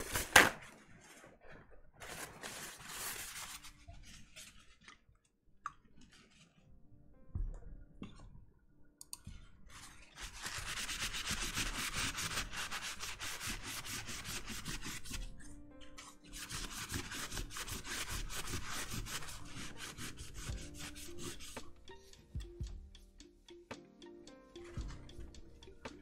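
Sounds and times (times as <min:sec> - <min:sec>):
paper towel rubbing metal: 0:10.2 - 0:15.2, 0:16.4 - 0:21.7.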